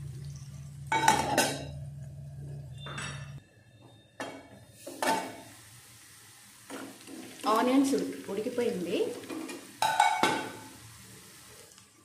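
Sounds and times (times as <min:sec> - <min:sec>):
low steady hum: 0:00.0 - 0:04.5
metal cookware clinking: 0:00.9 - 0:01.9, 0:02.7 - 0:03.4, 0:09.2 - 0:10.6.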